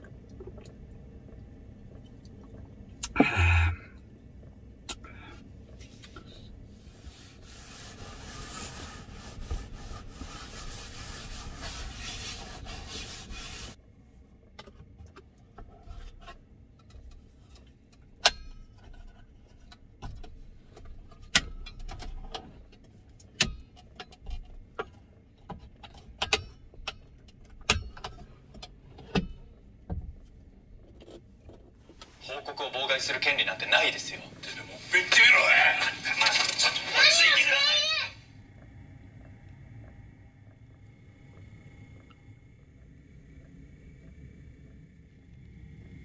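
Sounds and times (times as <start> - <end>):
steady hissing: 1.4 - 13.8, 31.9 - 46.0.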